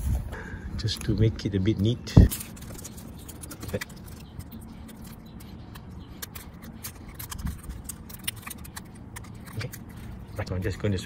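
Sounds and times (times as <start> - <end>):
tape crinkling clicks: 2.3 - 10.3.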